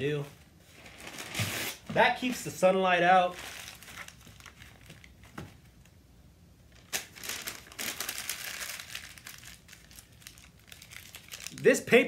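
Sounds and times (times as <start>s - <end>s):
paper crinkling and rustling: 3.3s - 5.8s, 6.8s - 11.7s.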